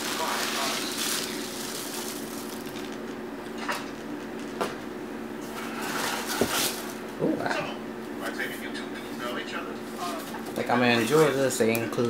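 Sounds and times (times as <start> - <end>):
cardboard and packing peanuts rustling: 0.0 - 3.0.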